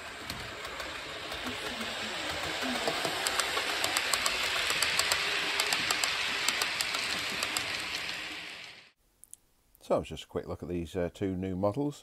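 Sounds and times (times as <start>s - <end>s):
model train whirring on rails: 0.0s - 9.0s
light rapid wheel clicks: 0.1s - 8.8s.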